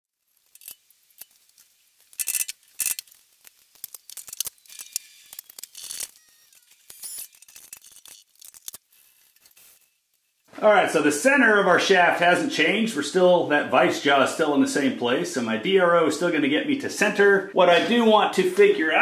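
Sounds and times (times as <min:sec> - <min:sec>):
metallic clicks and clinks: 0:02.1 - 0:03.2, 0:03.8 - 0:09.8.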